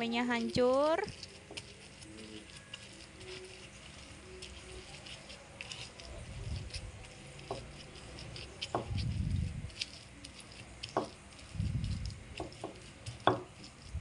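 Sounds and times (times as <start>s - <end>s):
stone pestle scraping mortar: 0.4s - 14.0s
dull thumps: 8.6s - 9.1s, 10.8s - 13.7s.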